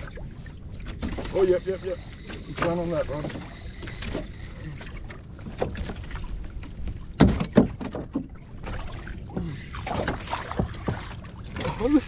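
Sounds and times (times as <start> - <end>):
wind and water rumble: 0.0 - 12.0
knocks on a kayak: 7.2 - 8.3.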